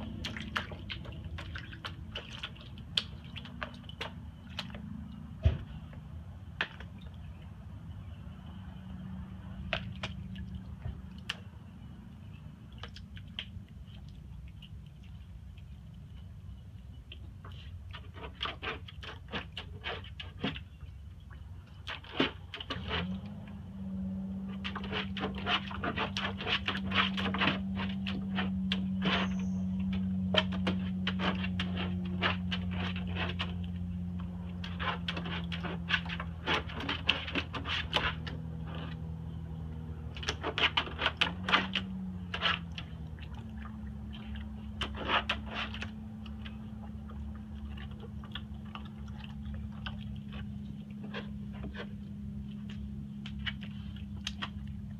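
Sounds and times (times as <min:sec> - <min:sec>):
puppy paws splashing water: 0:00.0 - 0:54.9.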